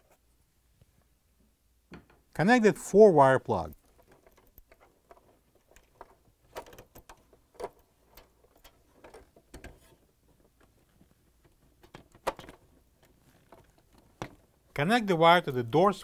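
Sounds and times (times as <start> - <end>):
small plastic clicks and rustles: 3.6 - 14.7.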